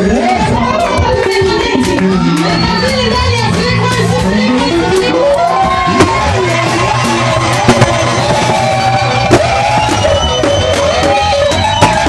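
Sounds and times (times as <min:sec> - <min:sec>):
guitar: 0:00.0 - 0:12.0
church praise music: 0:04.0 - 0:12.0.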